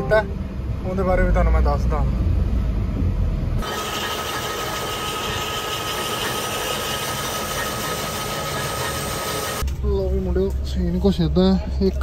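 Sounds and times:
road rumble inside car: 0.0 - 3.6
hacksaw scraping on lathe: 3.6 - 9.6.

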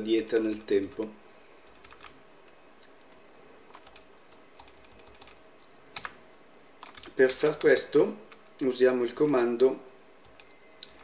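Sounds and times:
computer keyboard keystrokes: 1.7 - 2.2, 3.7 - 5.4, 6.0 - 6.2, 6.8 - 7.7, 10.2 - 11.0.

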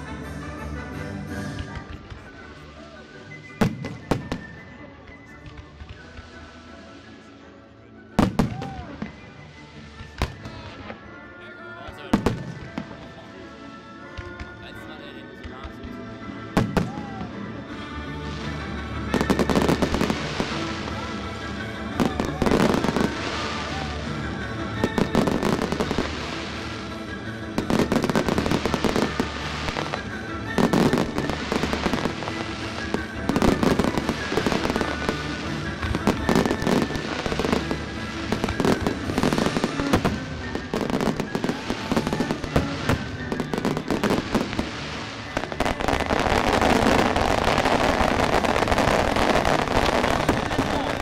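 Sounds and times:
music: 0.0 - 51.0
fireworks bangs: 1.4 - 6.4, 19.1 - 24.1, 27.5 - 51.0.

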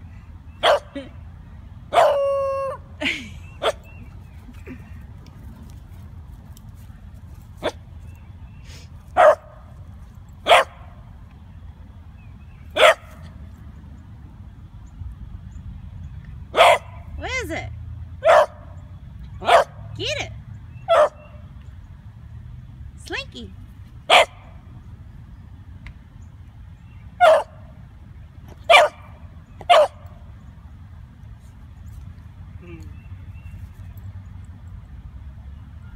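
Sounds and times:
puppy barking: 0.6 - 1.0, 1.9 - 2.8, 9.2 - 9.5, 10.5 - 10.8, 12.8 - 13.2, 16.6 - 17.0, 18.2 - 18.6, 19.4 - 19.8, 20.9 - 21.2, 24.1 - 24.4, 27.2 - 27.6, 28.7 - 29.0, 29.7 - 30.0.

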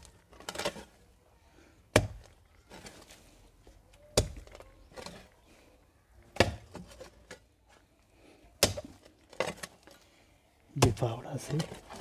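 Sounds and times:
soil knocking and rustling: 0.0 - 5.5, 8.5 - 12.0.

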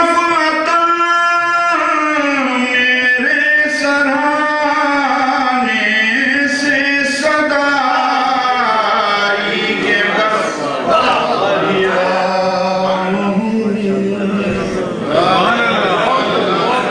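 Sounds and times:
man chanting unaccompanied: 0.0 - 16.9.

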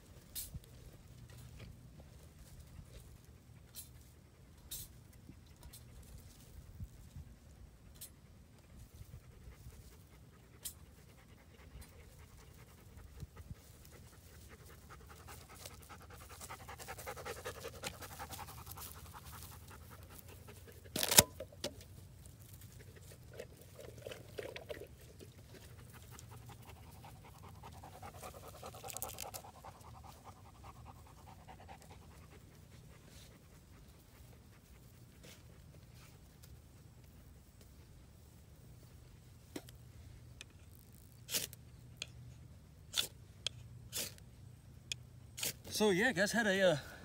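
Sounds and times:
dog panting: 8.3 - 20.9, 22.9 - 36.3.

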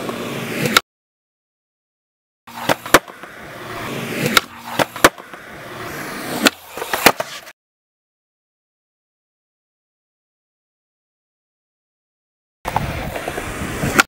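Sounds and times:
skateboard wheels rolling on concrete: 0.0 - 0.8, 2.5 - 7.6, 12.7 - 14.0
skateboard deck clacking: 2.5 - 7.5, 12.7 - 14.0.

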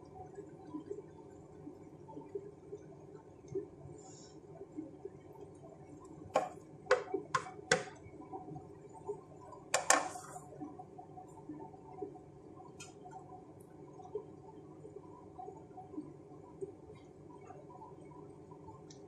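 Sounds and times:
wooden spatula knocking on pan: 6.4 - 7.9.

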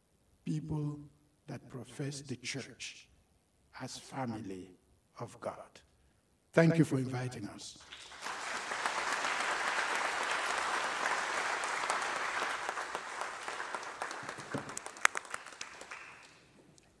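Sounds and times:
audience applauding: 7.8 - 16.8.

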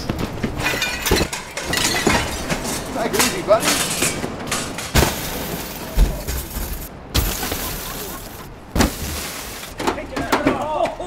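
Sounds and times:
metal table crashing on car: 0.2 - 8.0, 8.7 - 10.7
kicks on car bodywork: 8.7 - 9.3.

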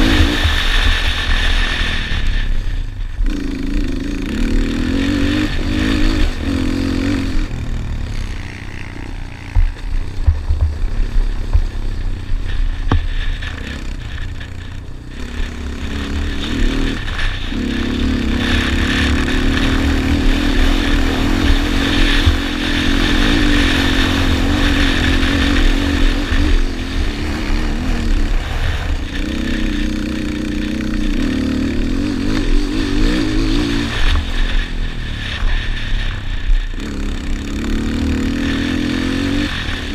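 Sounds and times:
quad engine racing: 0.0 - 39.9
sharp knocks over rough ground: 9.3 - 14.8.

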